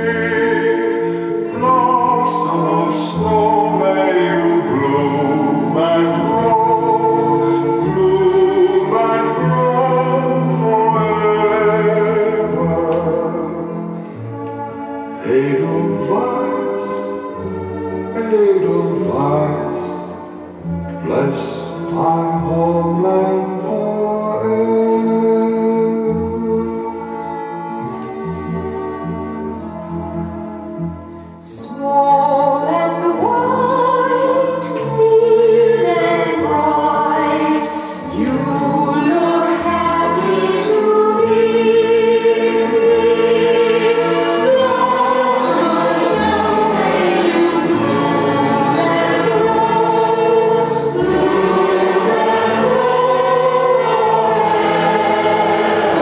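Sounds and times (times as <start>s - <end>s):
choir singing over loudspeakers: 0.0s - 14.0s, 15.1s - 20.2s, 31.4s - 56.0s.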